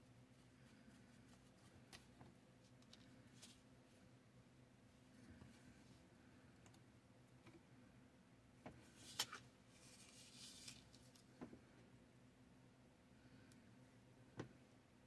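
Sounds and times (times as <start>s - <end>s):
paper rustling: 8.9s - 11.2s.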